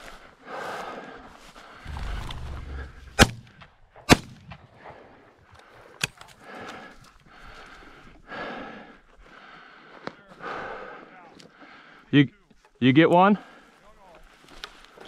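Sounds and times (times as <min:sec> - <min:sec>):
shotgun shots: 0:01.9 - 0:04.5.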